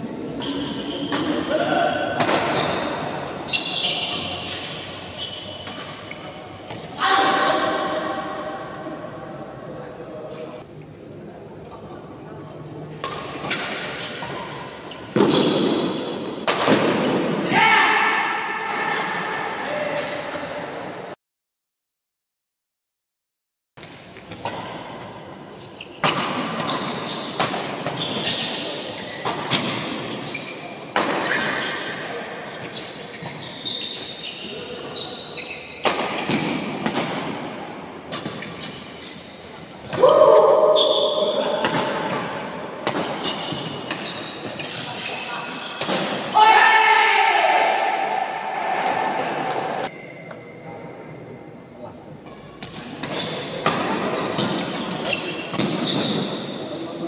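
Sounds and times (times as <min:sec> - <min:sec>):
shoes squeaking on court floor: 0:00.3 - 0:01.6, 0:02.5 - 0:07.0, 0:13.0 - 0:16.4, 0:23.8 - 0:36.8, 0:38.2 - 0:40.0, 0:40.7 - 0:46.0, 0:49.5 - 0:57.0
racket hitting shuttlecock: 0:02.2 - 0:02.9, 0:35.8 - 0:37.4, 0:41.6 - 0:44.8
rackets hitting shuttlecock: 0:13.0 - 0:17.4, 0:35.8 - 0:37.4, 0:41.6 - 0:46.3, 0:52.3 - 0:56.0.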